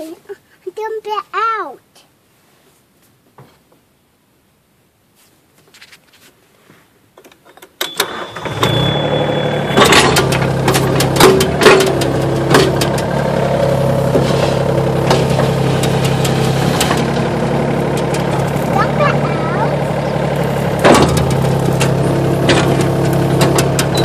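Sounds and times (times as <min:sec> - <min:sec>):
excavator bucket clanking: 0:07.8 - 0:24.0
excavator engine running: 0:07.9 - 0:24.0
high steady tone: 0:08.0 - 0:10.2.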